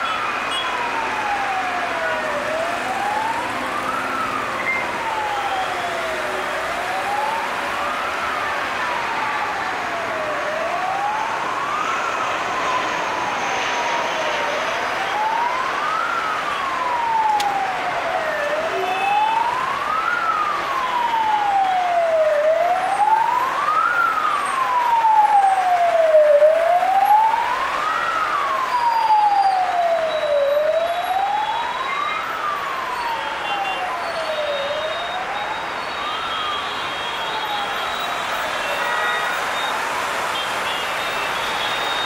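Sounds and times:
siren wailing: 0:00.0 - 0:42.0.

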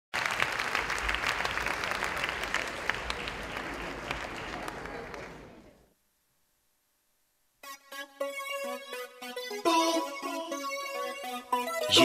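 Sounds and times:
audience applauding: 0:00.2 - 0:05.9.

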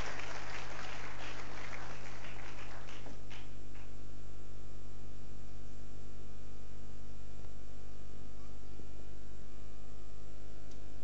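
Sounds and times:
scattered applause: 0:00.0 - 0:04.0
electrical mains hum: 0:00.0 - 0:11.0.

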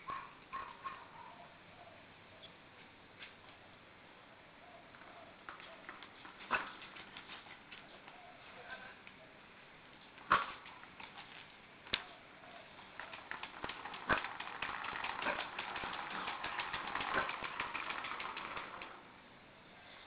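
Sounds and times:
plastic toy clattering on concrete: 0:12.8 - 0:19.0.

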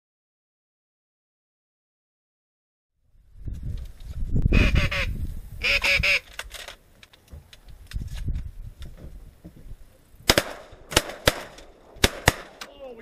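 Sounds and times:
duck quacks: 0:04.6 - 0:06.2.

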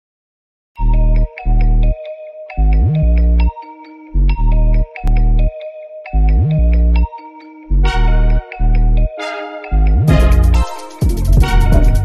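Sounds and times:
bell-like plucked tones: 0:00.8 - 0:12.0
bright synth chord: 0:07.8 - 0:12.0
heavy bass note: 0:10.0 - 0:12.0.

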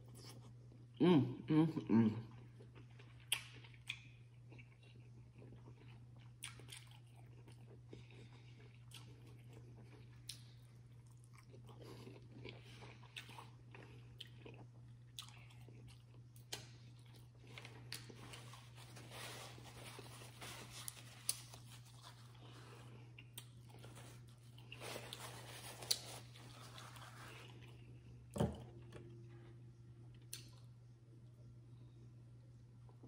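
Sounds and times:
person chewing with wet smacks: 0:02.3 - 0:18.8, 0:19.6 - 0:28.2, 0:30.1 - 0:30.7.

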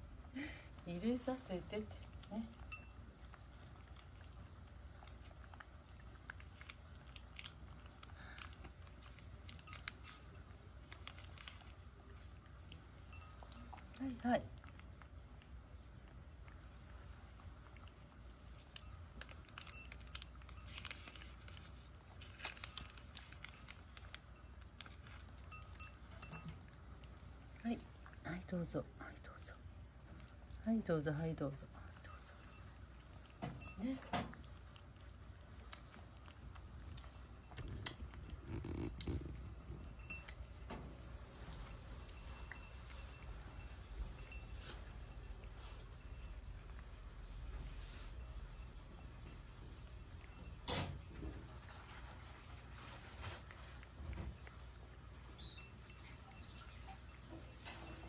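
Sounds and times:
cat chewing and licking: 0:00.0 - 0:58.0
bowl clinking: 0:02.5 - 0:03.4, 0:09.0 - 0:11.7, 0:13.0 - 0:14.0, 0:18.6 - 0:26.8, 0:32.0 - 0:34.5, 0:35.7 - 0:46.9, 0:55.2 - 0:58.0.

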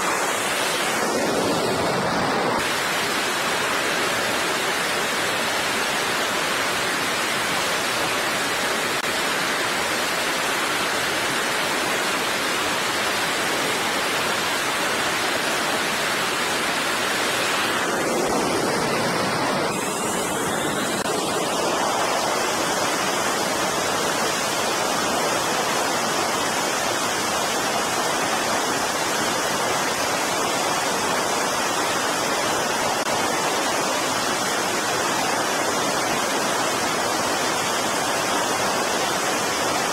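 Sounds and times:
jet engine roar: 0:00.0 - 0:09.2, 0:10.8 - 0:27.0
high turbine whine: 0:00.0 - 0:34.5.

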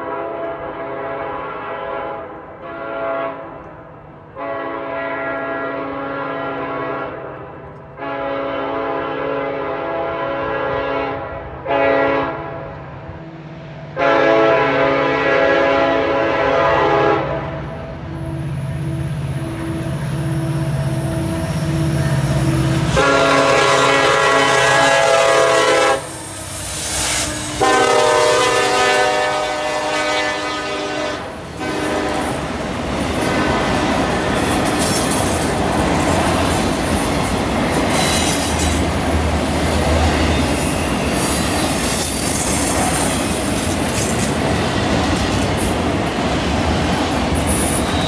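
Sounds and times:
locomotive horn blasts: 0:00.0 - 0:03.6, 0:04.3 - 0:13.2, 0:13.9 - 0:32.4, 0:33.2 - 0:34.0
diesel locomotive engine: 0:00.0 - 0:48.0
train rumbling on rails: 0:00.0 - 0:48.0.

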